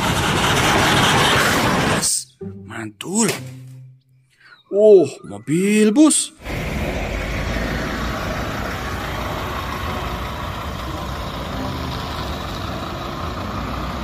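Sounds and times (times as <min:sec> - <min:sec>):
bus engine running: 0:00.0 - 0:02.2, 0:06.4 - 0:14.0.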